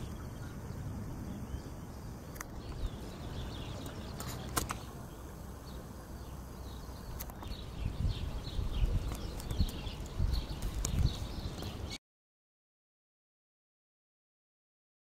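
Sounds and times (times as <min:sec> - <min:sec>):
steady low rumble: 0:00.0 - 0:11.9.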